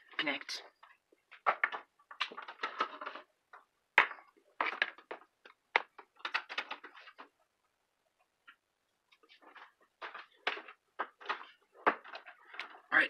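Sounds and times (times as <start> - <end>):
cables and plugs clicking: 0.8 - 7.3.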